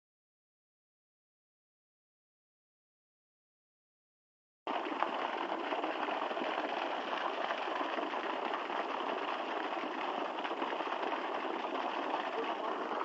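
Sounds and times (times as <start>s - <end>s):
water gushing from a pipe: 4.7s - 13.0s.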